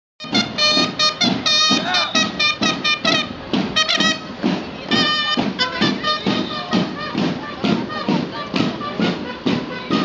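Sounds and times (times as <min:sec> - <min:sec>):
brass horns playing melody: 0:00.2 - 0:10.0
steady drumbeat: 0:00.2 - 0:10.0.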